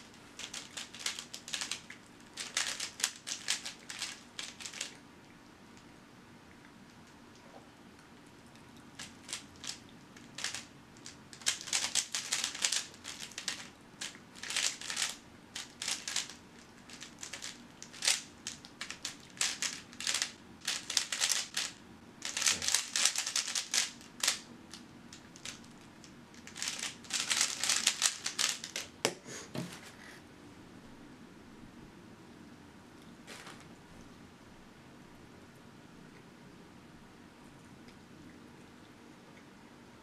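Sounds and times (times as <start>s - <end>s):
puzzle cube plastic clicking: 26.4s - 28.9s.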